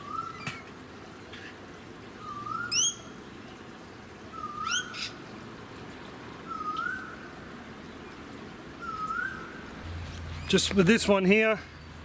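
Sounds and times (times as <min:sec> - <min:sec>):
bird whistle rising and falling: 0:00.0 - 0:00.6, 0:02.2 - 0:03.2, 0:04.3 - 0:05.1, 0:06.5 - 0:07.2, 0:08.8 - 0:09.7.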